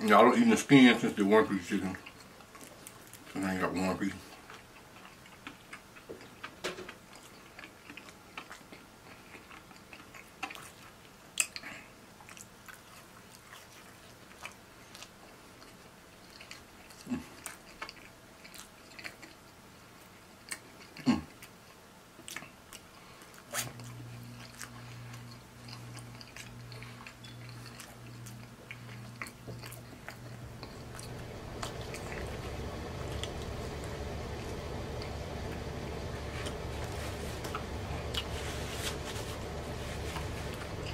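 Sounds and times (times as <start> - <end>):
man chewing and biting food: 1.8 - 3.4, 4.2 - 40.9
low steady hum: 22.8 - 40.9.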